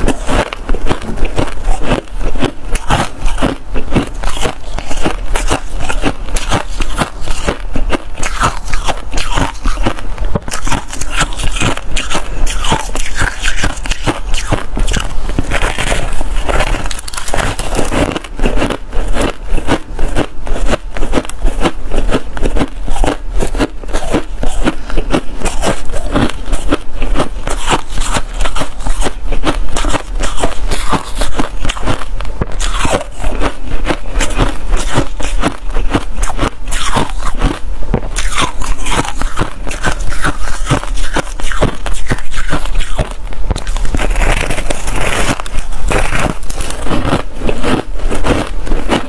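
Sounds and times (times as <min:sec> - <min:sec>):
frost crunching while chewed: 0:00.0 - 0:49.0.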